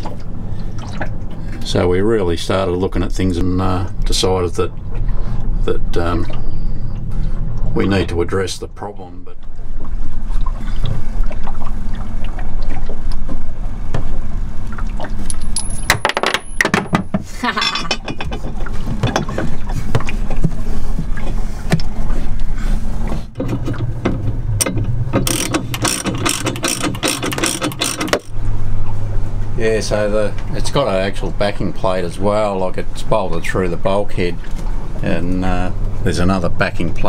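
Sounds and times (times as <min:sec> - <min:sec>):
steady low hum: 0:00.0 - 0:37.0
metal scraping and clinking: 0:24.6 - 0:28.3.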